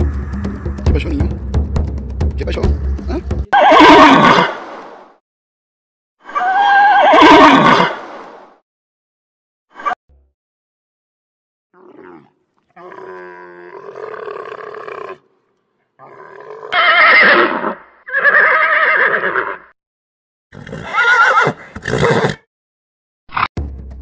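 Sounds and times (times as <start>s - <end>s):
horse whinnying: 3.5s - 4.5s, 6.3s - 8.0s, 16.0s - 19.8s, 20.6s - 22.4s.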